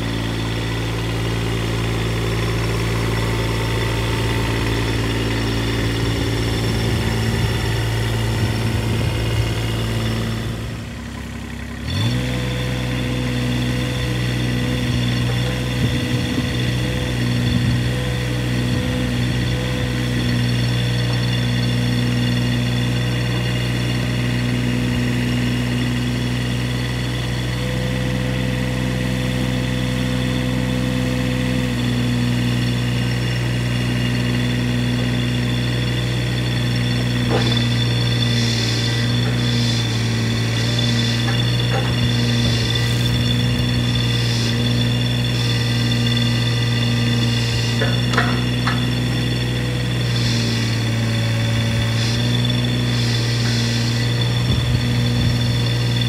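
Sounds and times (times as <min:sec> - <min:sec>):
excavator diesel engine running: 0:00.0 - 0:56.0
high hiss: 0:50.0 - 0:55.0.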